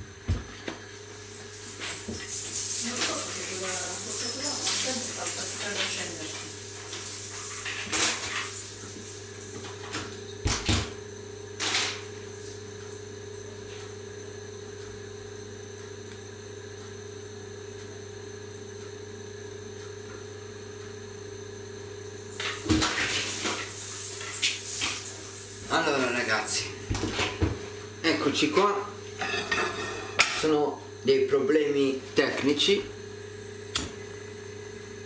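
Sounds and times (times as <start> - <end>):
low mechanical hum: 0.0 - 35.0.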